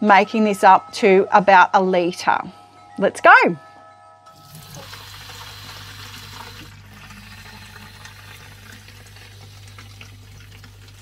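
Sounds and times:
tap water filling plastic bottle: 4.3 - 11.0.

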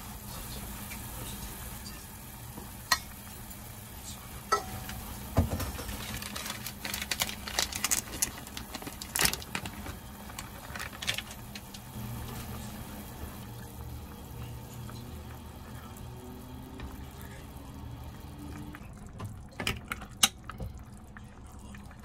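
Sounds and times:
dried noodles crackling into pot: 4.8 - 12.4.

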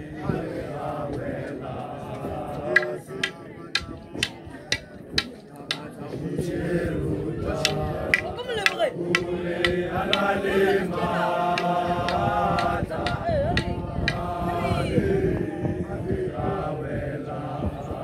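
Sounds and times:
men chanting together: 0.0 - 18.0
sharp percussive strikes: 2.7 - 5.9.

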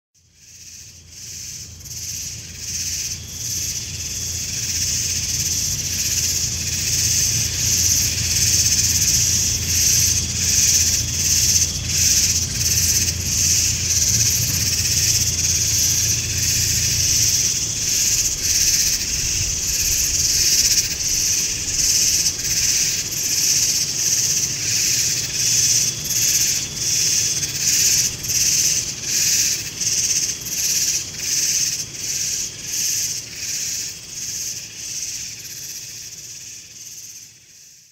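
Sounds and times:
insects droning rhythmically: 0.2 - 37.9
low hum: 2.2 - 22.7.

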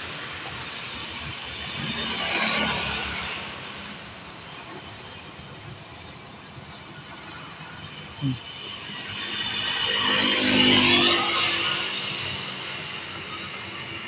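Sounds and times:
distant traffic: 0.0 - 14.0
motorcycle passing by: 9.6 - 12.5.

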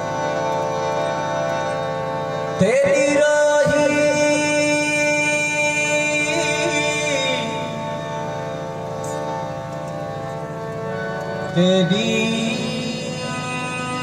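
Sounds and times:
harmonium: 0.0 - 14.0
man singing long note: 2.6 - 8.6, 11.5 - 14.0.

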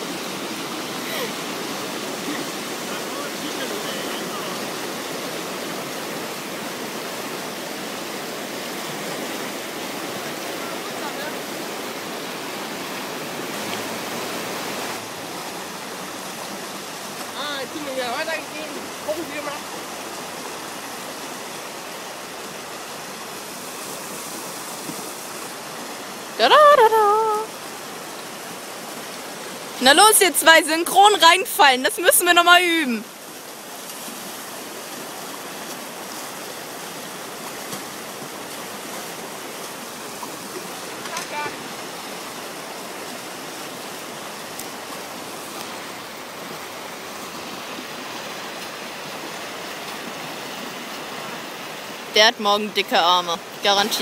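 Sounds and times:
rushing whitewater: 0.0 - 54.0
high voice calling out: 26.4 - 27.5, 29.8 - 33.0.

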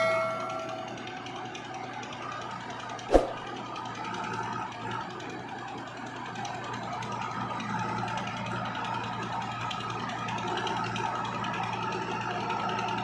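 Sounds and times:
diesel engines idling: 0.0 - 13.0
sharp thump: 3.1 - 3.5.

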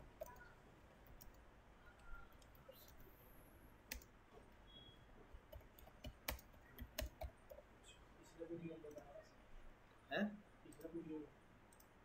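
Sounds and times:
computer keyboard typing: 0.1 - 1.4, 3.9 - 4.1, 5.3 - 7.6.

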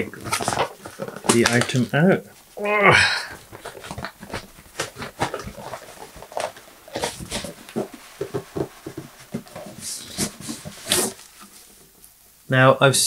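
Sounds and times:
cardboard box rubbing and scraping: 3.4 - 11.8.

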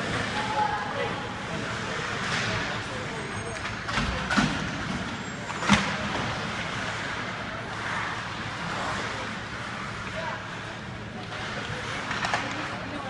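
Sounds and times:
hockey stick hitting puck: 12.0 - 12.7.

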